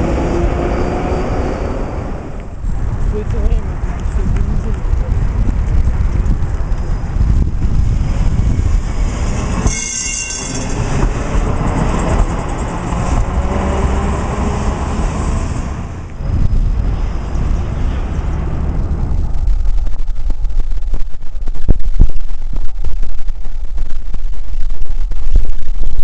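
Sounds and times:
high wheel squeal: 0:00.0 - 0:02.4, 0:06.6 - 0:12.9
tram wheels rumbling on track: 0:00.0 - 0:21.5.

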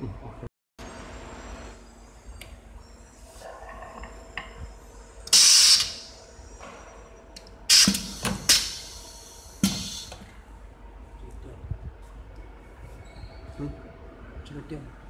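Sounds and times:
compressed air hiss blasts: 0:05.3 - 0:06.2, 0:07.7 - 0:10.2.

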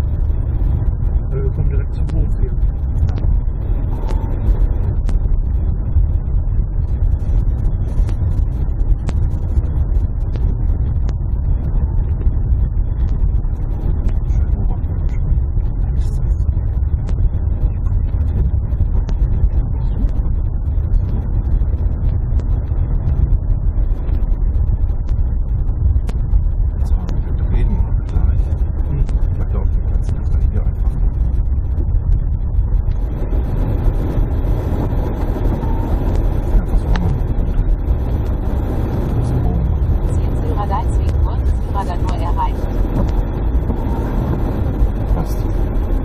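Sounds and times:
car engine and tyre rumble: 0:00.0 - 0:46.0
light ticks: 0:07.2 - 0:11.2, 0:19.0 - 0:19.3, 0:20.9 - 0:45.9.

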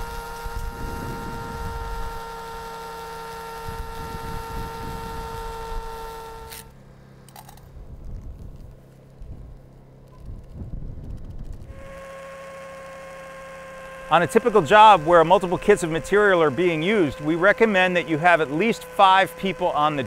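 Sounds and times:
electric drill mixing paddle: 0:00.0 - 0:06.8, 0:11.4 - 0:20.0.

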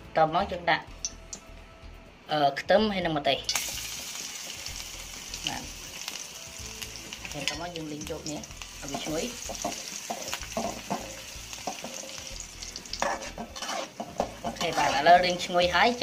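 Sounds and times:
garlic sizzling in hot oil: 0:03.4 - 0:16.0
metal spatula scraping pan: 0:08.9 - 0:15.9.

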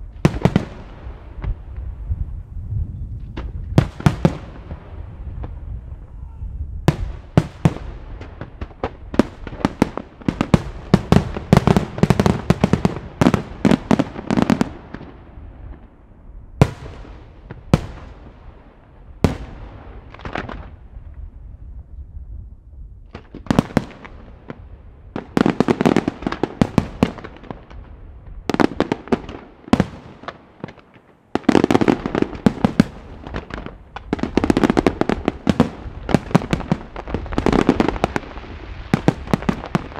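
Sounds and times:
fireworks bursting: 0:00.0 - 0:02.4, 0:03.1 - 0:06.2, 0:06.8 - 0:16.0, 0:16.6 - 0:21.0, 0:23.1 - 0:39.9.

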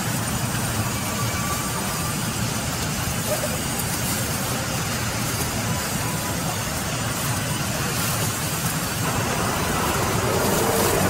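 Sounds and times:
band saw machinery running: 0:08.7 - 0:11.0.

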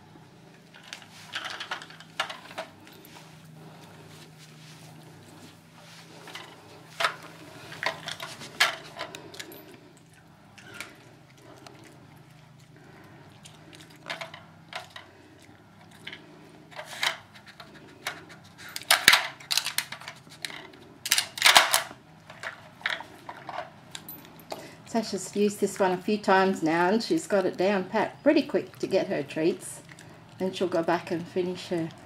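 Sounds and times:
plastic puzzle pieces clattering: 0:00.8 - 0:02.7, 0:18.8 - 0:23.6.

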